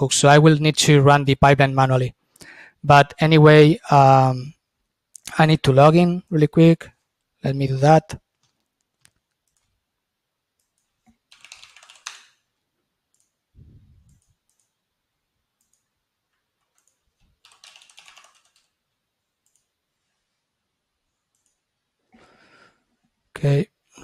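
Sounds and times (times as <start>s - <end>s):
typing on computer keyboard: 8.4s - 9.7s, 10.6s - 12.4s, 14.1s - 14.8s, 15.6s - 15.9s, 16.6s - 18.8s.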